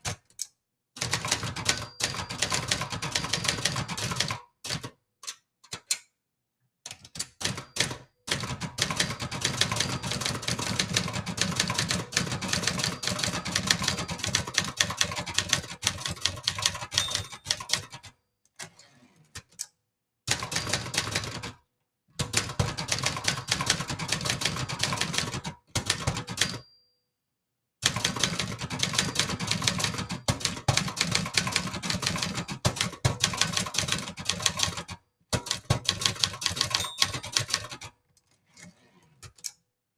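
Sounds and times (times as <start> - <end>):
typewriter typing: 1.0 - 5.0, 6.9 - 18.2, 20.3 - 21.6, 22.2 - 26.6, 27.8 - 38.0.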